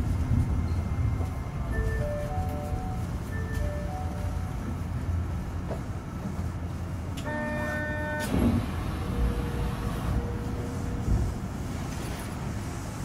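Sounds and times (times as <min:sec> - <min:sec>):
train low hum: 0:00.0 - 0:13.0.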